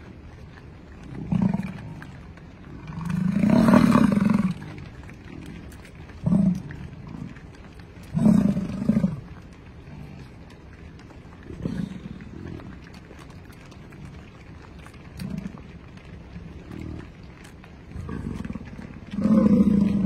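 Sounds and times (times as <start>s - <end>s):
bison bellowing: 17.9s - 20.0s.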